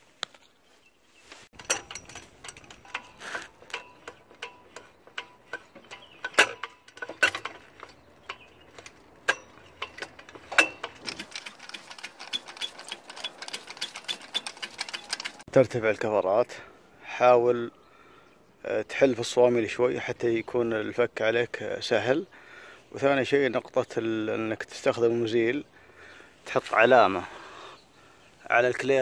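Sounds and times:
floor jack clicking and clanking: 1.6s - 15.5s.

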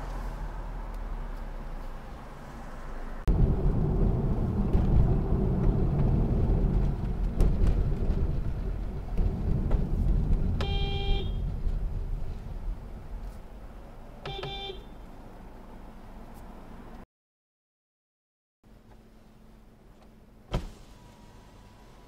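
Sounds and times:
car driving: 0.0s - 17.0s
short beep: 10.6s - 11.4s, 14.3s - 15.0s.

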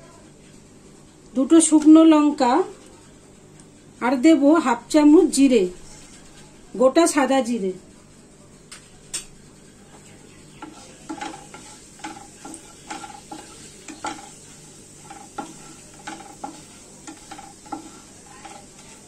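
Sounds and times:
spices sizzling in hot oil: 0.3s - 19.0s
spatula scraping a pan: 5.6s - 6.6s, 10.5s - 19.0s.

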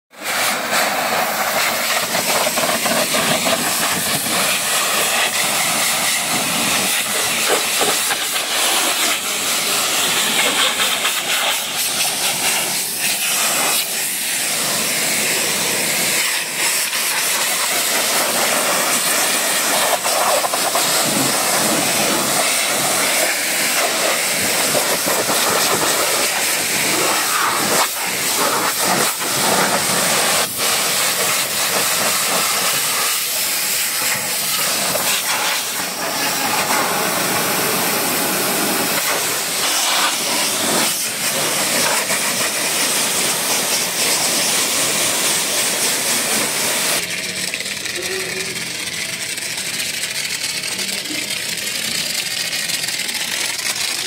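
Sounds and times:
pressure washer spraying car: 0.1s - 54.0s.

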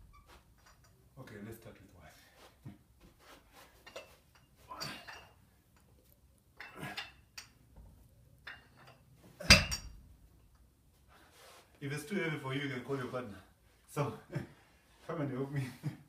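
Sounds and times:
weight plates clinking: 3.8s - 5.9s, 8.4s - 10.0s
dumbbell rattles: 6.6s - 10.0s.

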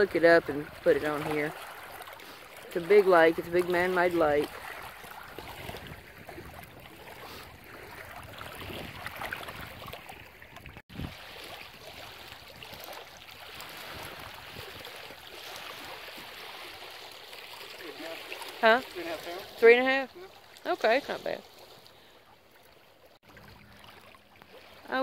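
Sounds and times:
lake waves lapping at shore: 0.0s - 25.0s
wind: 0.0s - 25.0s.

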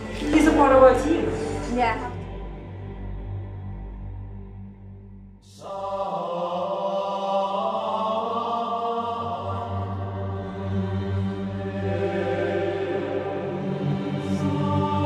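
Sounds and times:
low drone: 0.0s - 6.9s
sustained chant-like voices: 0.0s - 15.0s.

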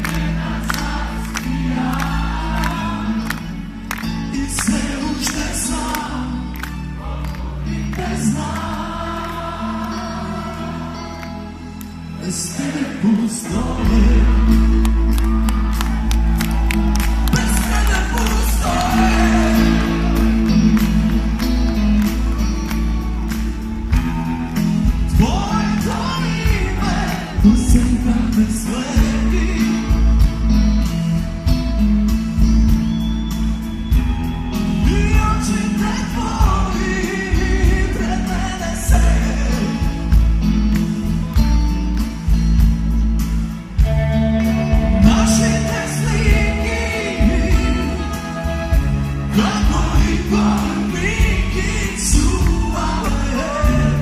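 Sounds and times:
man singing: 0.0s - 3.6s, 4.2s - 11.1s, 12.2s - 15.3s, 17.2s - 20.8s, 25.1s - 30.6s, 34.7s - 40.3s, 44.7s - 54.0s
live rock band playing: 0.0s - 54.0s.

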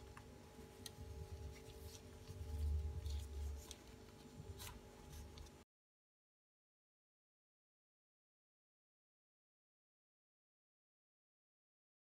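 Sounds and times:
pastry sheet rustling: 0.0s - 5.6s.

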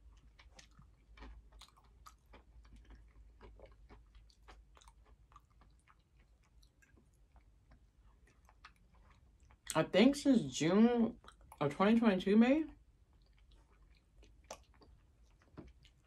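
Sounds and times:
chewing food with mouth closed: 0.0s - 9.8s, 11.1s - 11.6s, 12.8s - 16.0s.

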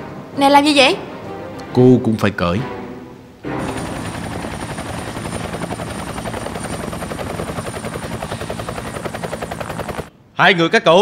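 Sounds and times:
helicopter rotors beating: 3.4s - 10.1s.

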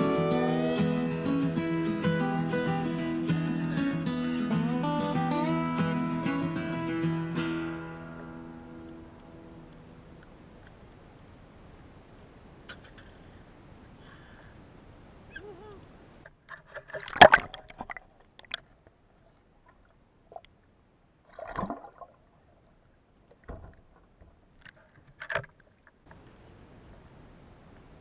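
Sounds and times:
underwater water sloshing and splashing: 16.2s - 26.3s.

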